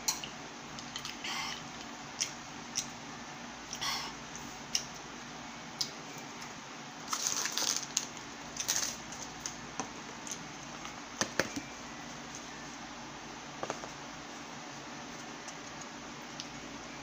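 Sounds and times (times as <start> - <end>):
paper packaging rustling: 7.1 - 9.5.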